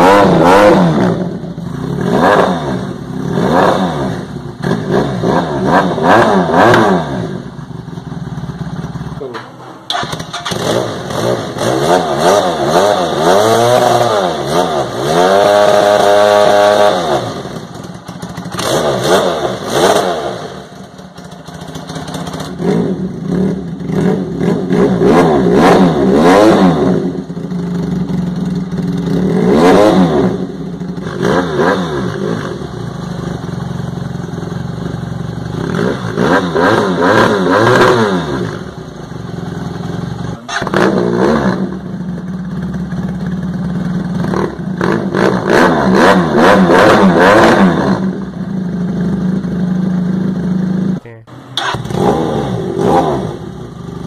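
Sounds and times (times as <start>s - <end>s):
motorcycle engine revving: 0.0s - 54.0s.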